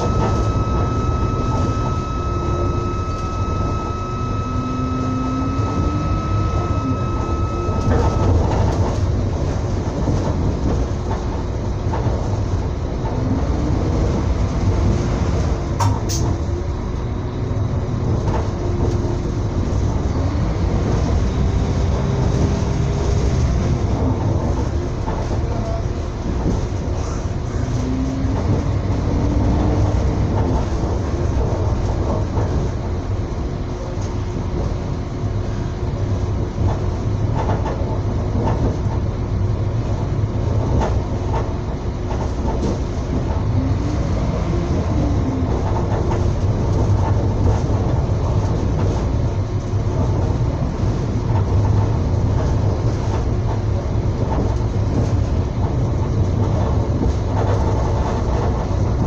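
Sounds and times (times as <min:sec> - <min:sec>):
faint wavering whining tones: 0:00.0 - 0:09.2
train rumbling on track: 0:00.0 - 0:59.0.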